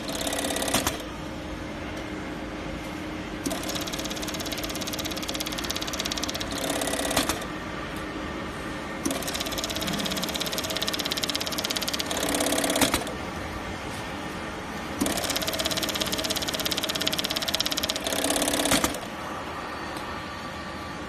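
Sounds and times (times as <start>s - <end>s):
bag sewing machine stitching: 0.0s - 1.0s, 3.4s - 7.5s, 9.1s - 13.1s, 15.0s - 19.1s
steady machine hum: 0.0s - 21.0s.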